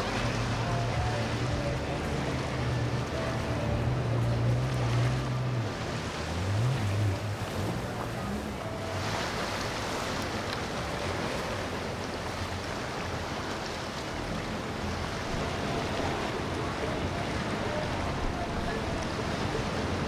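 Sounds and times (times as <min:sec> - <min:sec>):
churning water: 0:00.0 - 0:20.0
outboard motor: 0:00.0 - 0:20.0.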